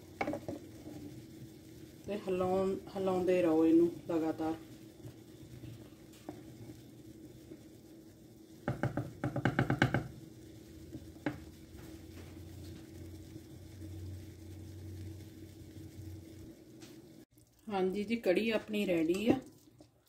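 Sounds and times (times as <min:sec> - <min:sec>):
wooden spoon knocking and scraping pot: 0:00.0 - 0:01.5, 0:02.2 - 0:06.8, 0:08.6 - 0:10.2, 0:10.9 - 0:13.0, 0:18.6 - 0:20.0.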